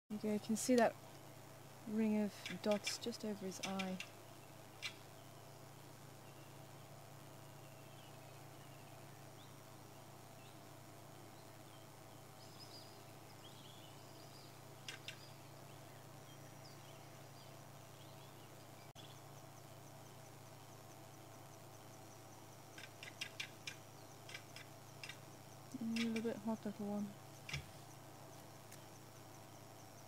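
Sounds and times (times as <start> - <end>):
steady low hum: 0.1 - 30.0
high ticking chirps: 0.6 - 6.7, 11.2 - 30.0
sharp clicks: 2.4 - 4.2, 4.8 - 5.0, 22.8 - 26.4
distant bird chirps: 6.2 - 19.9.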